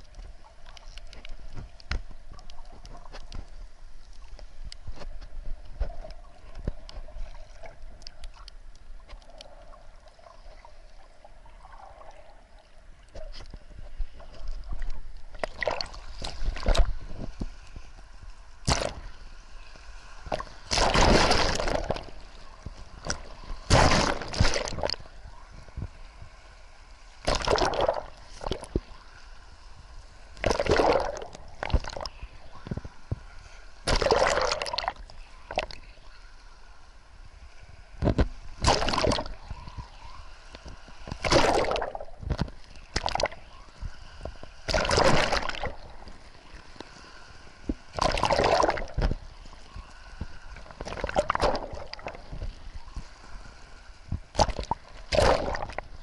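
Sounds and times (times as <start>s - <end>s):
water sloshing and gurgling: 0.0s - 36.1s, 37.2s - 56.0s
waves splashing over rocks: 20.2s - 22.2s, 23.0s - 25.0s, 30.4s - 32.1s, 41.0s - 43.4s, 44.6s - 46.2s, 47.6s - 53.2s, 54.1s - 56.0s.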